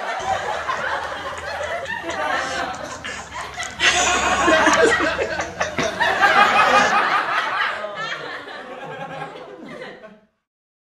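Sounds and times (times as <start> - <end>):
woman laughing: 0.0 - 8.2.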